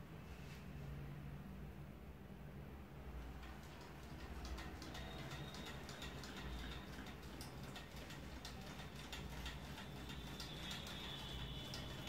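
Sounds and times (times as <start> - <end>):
stirling engine ticking: 3.4 - 12.0.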